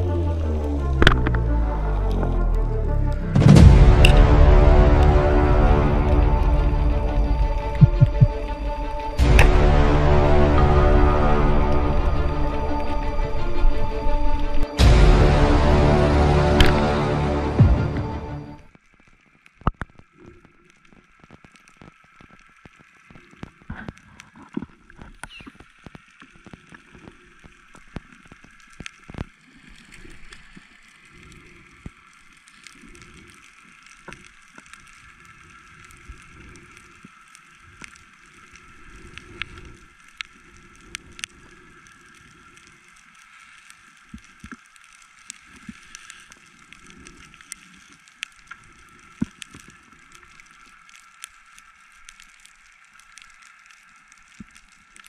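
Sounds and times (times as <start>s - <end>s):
sharp clicks and crackles: 0.1s - 4.4s, 7.1s - 9.6s, 18.7s - 55.0s
underwater water sloshing: 5.7s - 14.8s.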